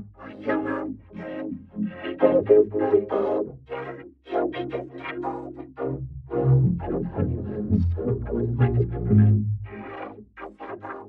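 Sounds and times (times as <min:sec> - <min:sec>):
distorted electronic notes: 0:06.4 - 0:09.6.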